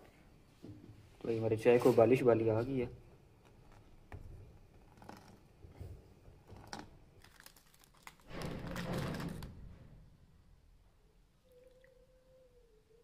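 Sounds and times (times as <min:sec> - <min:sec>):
plastic wrapper crinkling: 0:06.5 - 0:09.6.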